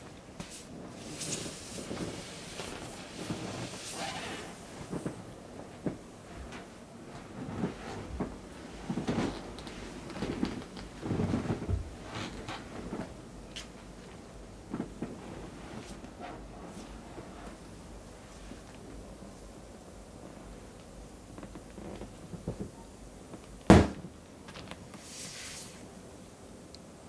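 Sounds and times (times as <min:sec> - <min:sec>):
inflatable vinyl toy rubbing: 0:00.4 - 0:18.7.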